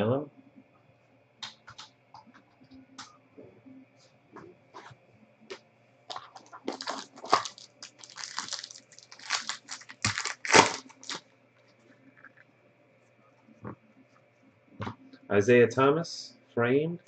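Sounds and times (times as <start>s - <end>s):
plastic wrapper tearing and crinkling: 6.1s - 11.2s.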